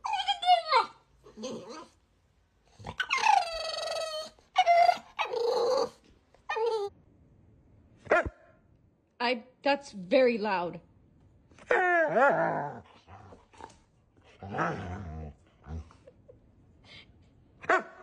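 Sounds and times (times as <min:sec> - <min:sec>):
puppy howling and yelping: 0:00.0 - 0:02.0, 0:02.9 - 0:06.9, 0:11.6 - 0:12.8.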